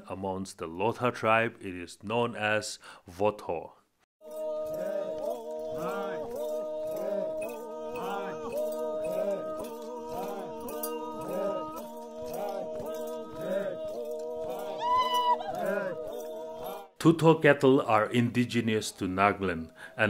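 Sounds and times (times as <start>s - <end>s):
background music with held notes: 4.2s - 14.8s.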